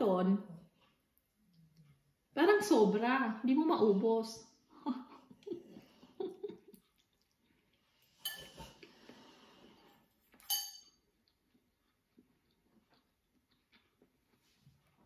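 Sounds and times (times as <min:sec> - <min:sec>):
slurping and chewing noodles: 0:05.6 - 0:10.3, 0:11.1 - 0:15.0
metal fork scraping a bowl: 0:08.2 - 0:08.8, 0:10.4 - 0:11.0.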